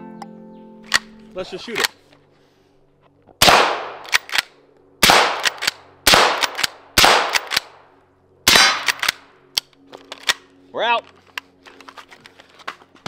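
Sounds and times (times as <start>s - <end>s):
rifle shots: 3.4s - 7.8s, 8.4s - 9.3s.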